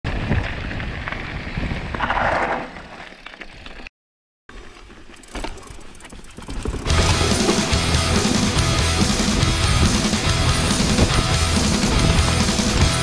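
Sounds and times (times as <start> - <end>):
rolling rumble of bike: 0.1 - 3.9, 4.5 - 13.0.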